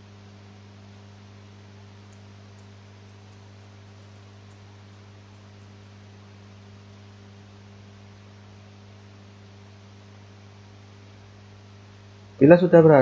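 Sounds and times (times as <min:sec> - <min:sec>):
faint hiss: 0:00.0 - 0:10.3
low electrical hum: 0:00.0 - 0:13.0.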